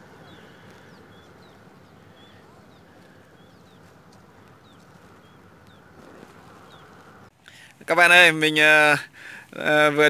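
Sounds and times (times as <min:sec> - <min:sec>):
small birds chirping: 0:00.0 - 0:07.7.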